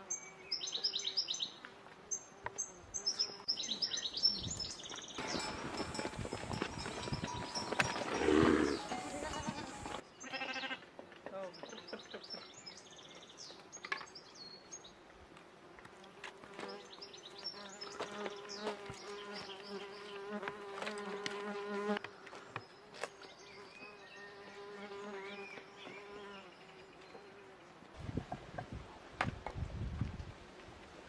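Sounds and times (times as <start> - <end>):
flying insect buzzing: 7.1 - 10.0, 16.0 - 22.0.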